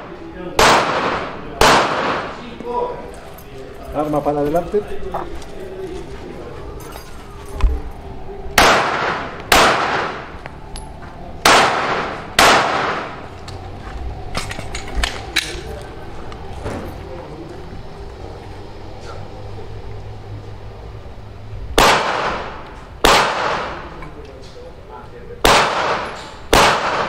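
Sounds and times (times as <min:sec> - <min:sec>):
gunshots with echo: 0:00.0 - 0:02.6, 0:08.6 - 0:10.4, 0:11.4 - 0:13.3, 0:21.8 - 0:24.0, 0:25.4 - 0:27.0
sharp metallic clicks and clinks: 0:10.7 - 0:11.0, 0:14.3 - 0:16.4.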